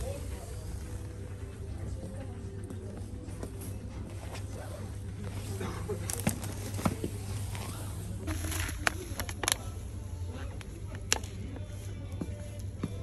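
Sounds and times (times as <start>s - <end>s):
supermarket background hum: 0.0s - 13.0s
packaging clicks and crinkles: 6.0s - 9.8s.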